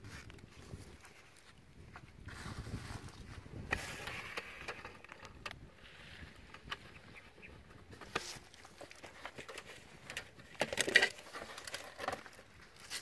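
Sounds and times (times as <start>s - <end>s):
flip-flops scuffing on sandy soil: 0.0s - 4.0s.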